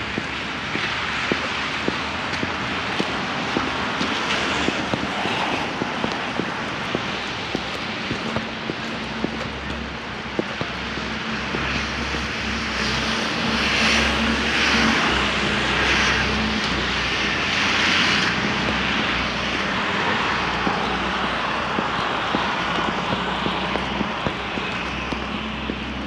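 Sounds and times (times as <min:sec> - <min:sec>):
traffic engine hum: 0:00.0 - 0:26.0.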